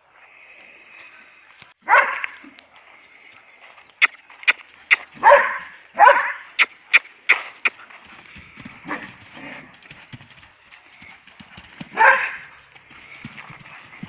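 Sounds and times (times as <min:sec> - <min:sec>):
dog barking: 0:01.8 - 0:02.4, 0:05.2 - 0:06.7, 0:12.0 - 0:12.5.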